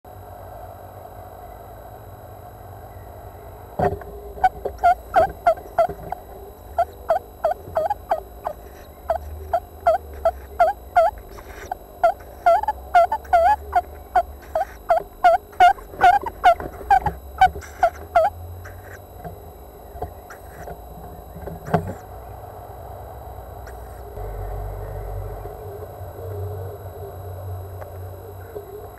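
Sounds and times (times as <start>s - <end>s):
owlet squeaky calls: 4.4s - 19.0s.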